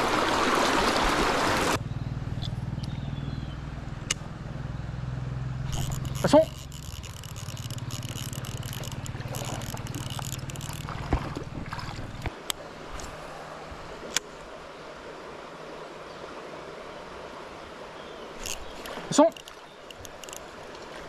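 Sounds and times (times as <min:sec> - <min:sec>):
small stream running: 0:00.0 - 0:21.0
sharp clicks: 0:05.7 - 0:10.9, 0:18.4 - 0:20.5.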